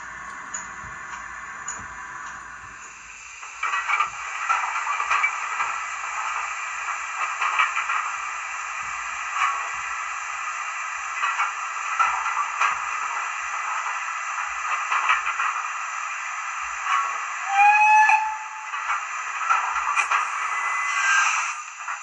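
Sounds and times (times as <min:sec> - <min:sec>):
model locomotive steam hiss: 0:00.0 - 0:22.0
steam puffs from small speaker: 0:16.0 - 0:22.0.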